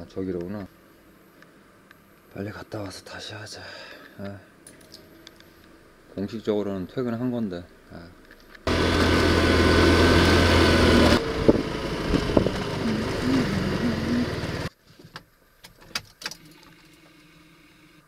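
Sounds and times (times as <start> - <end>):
motorcycle engine running: 8.7 - 14.7.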